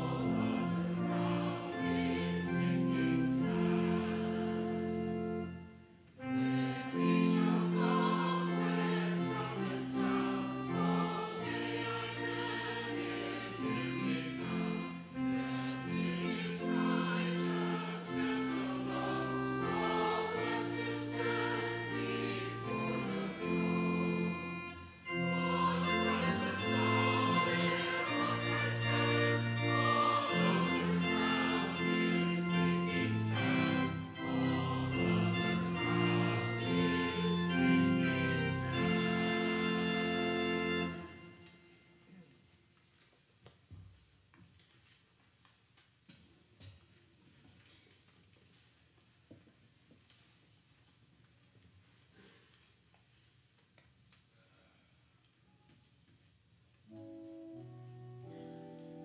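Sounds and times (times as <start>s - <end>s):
organ chords: 0.0s - 42.1s, 56.9s - 59.0s
church choir singing: 0.0s - 42.2s, 56.9s - 59.0s.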